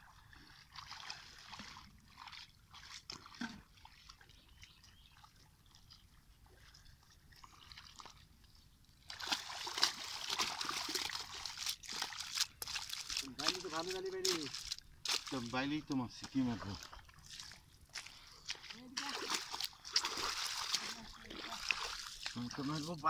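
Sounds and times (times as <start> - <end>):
broom splashing in pond water: 0.5 - 4.3, 9.1 - 15.6, 16.2 - 23.0.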